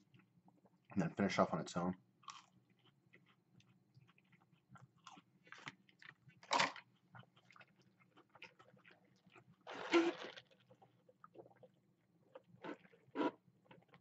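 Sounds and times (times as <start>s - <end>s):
crisp chewing crunches: 2.2s - 11.7s.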